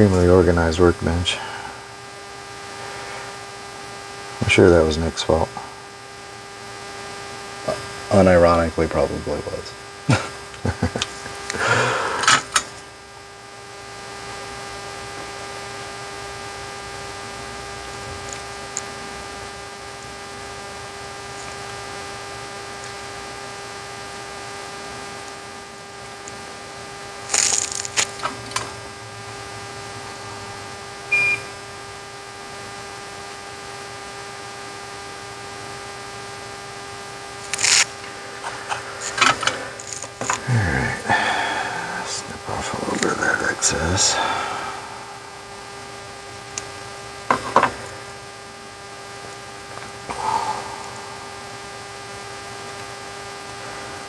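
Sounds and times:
steady electrical hum: 0:00.0 - 0:54.0
short single beep: 0:31.1 - 0:31.5.

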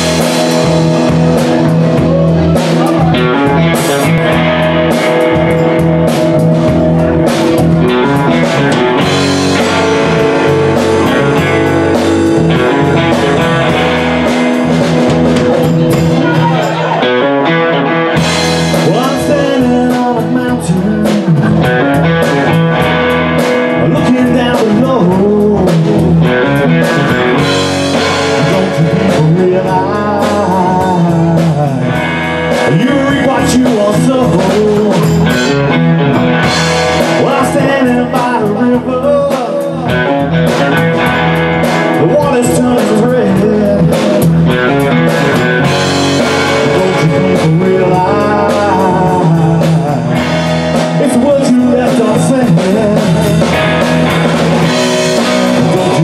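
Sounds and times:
drum hits: 0:00.0 - 0:17.0
bass guitar: 0:00.0 - 0:56.0
electric guitar chords: 0:00.0 - 0:56.0.

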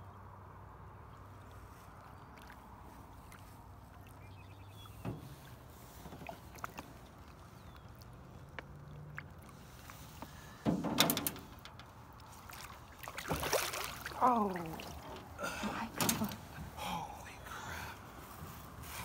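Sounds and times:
water sloshing against boat: 0:01.2 - 0:19.0
fish thrashing splash: 0:12.1 - 0:15.3.

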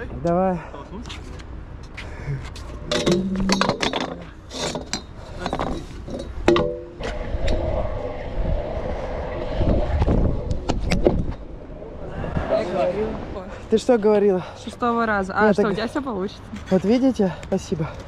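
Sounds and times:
metal scooter clinking and knocking: 0:02.9 - 0:06.9.

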